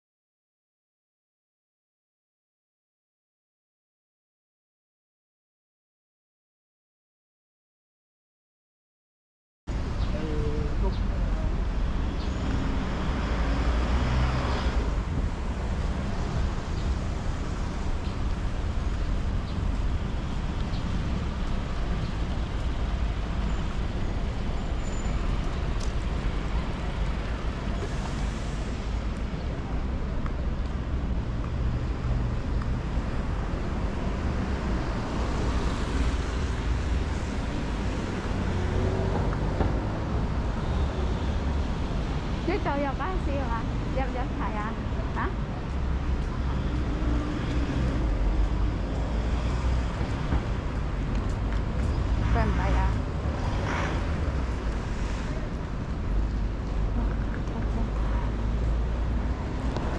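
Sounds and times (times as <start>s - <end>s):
traffic rumble: 9.7s - 59.9s
vehicles passing: 9.7s - 59.9s.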